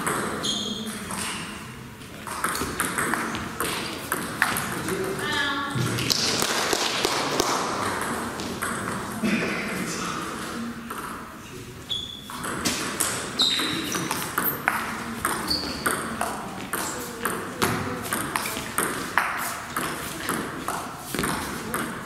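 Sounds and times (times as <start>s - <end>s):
short high squeaks: 0.4s - 0.9s, 11.9s - 12.3s, 13.4s - 14.6s, 15.4s - 15.9s
table tennis ball clicking: 2.2s - 5.2s.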